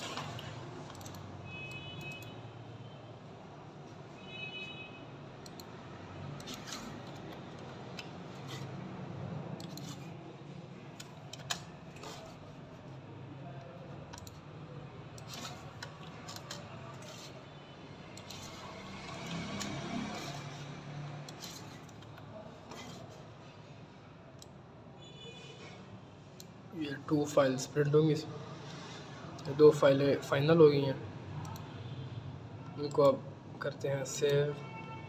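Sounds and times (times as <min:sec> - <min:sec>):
mouse and keyboard clicks: 0:00.0 - 0:01.3, 0:06.4 - 0:08.7, 0:09.6 - 0:10.1, 0:11.0 - 0:12.4, 0:14.1 - 0:14.4, 0:15.2 - 0:17.3, 0:18.2 - 0:20.6, 0:21.2 - 0:23.2.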